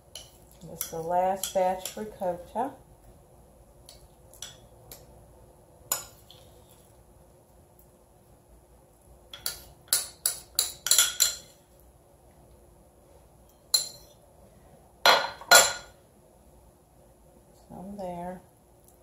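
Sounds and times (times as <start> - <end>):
metal spoon clinking and scraping: 9.3 - 11.6, 13.7 - 14.2.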